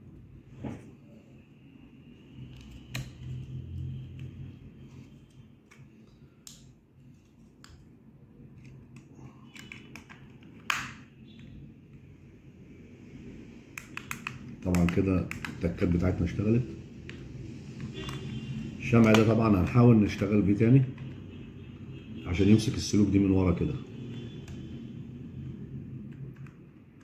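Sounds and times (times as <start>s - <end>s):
plastic parts clicking: 8.6s - 11.5s.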